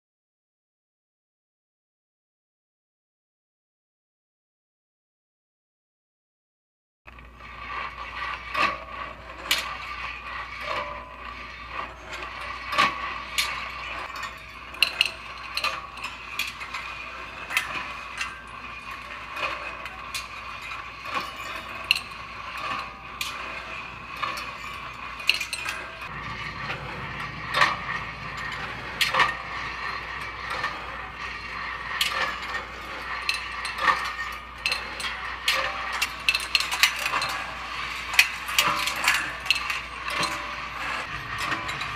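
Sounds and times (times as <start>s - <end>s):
chain drive mechanical whir: 7.1s - 41.9s
steel balls clicking on tracks: 7.1s - 41.9s.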